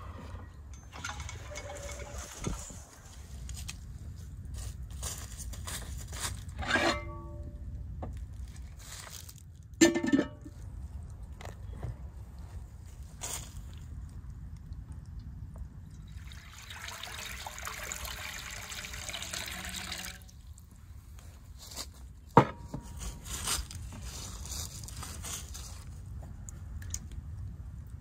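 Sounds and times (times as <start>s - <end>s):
water pouring into metal pan: 16.0s - 20.4s.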